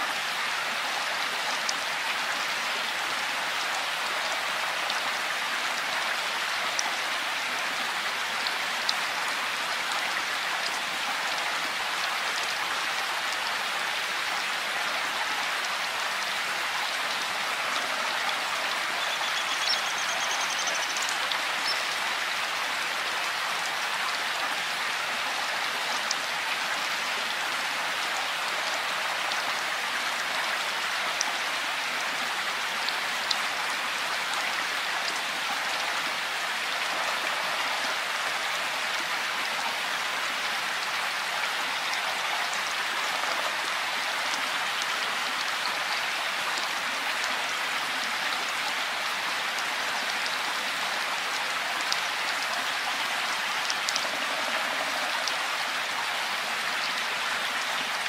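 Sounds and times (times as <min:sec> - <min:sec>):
steady rain hiss: 0:00.0 - 0:58.0.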